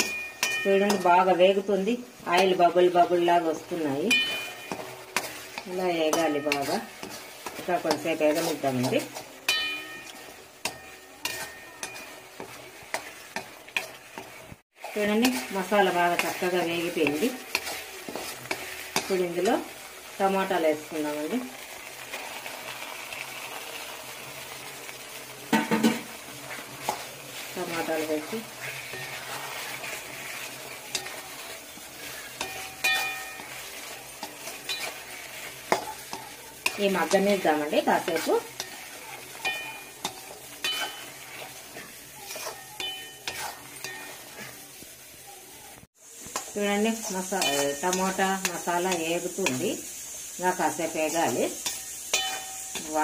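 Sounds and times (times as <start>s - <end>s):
sharp ringing clink: 0.0s - 1.0s
spatula scraping and knocking pan: 0.0s - 21.0s, 25.5s - 44.8s, 46.2s - 50.0s, 50.6s - 53.0s
paste sizzling in oil: 0.0s - 53.0s.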